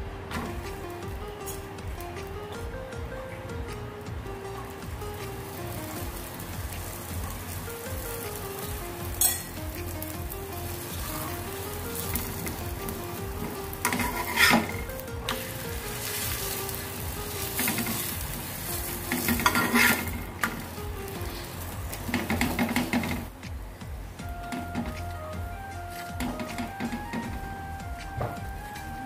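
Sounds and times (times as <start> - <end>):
flatbread sizzling in oil: 4.6 - 23.3
metal spatula scraping pan: 13.8 - 15.4, 19.1 - 20.3.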